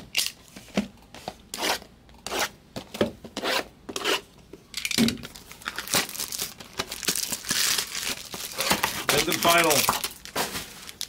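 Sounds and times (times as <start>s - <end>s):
wrapping being torn: 5.3s - 11.0s.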